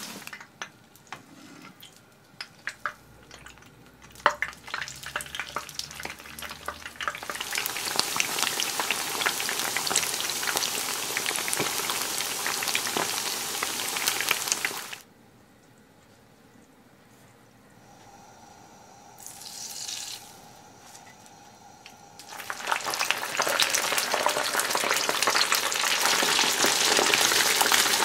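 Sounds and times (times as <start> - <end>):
chicken deep-frying in oil: 0.0 - 1.0, 1.8 - 15.0, 19.0 - 20.6, 22.0 - 28.0.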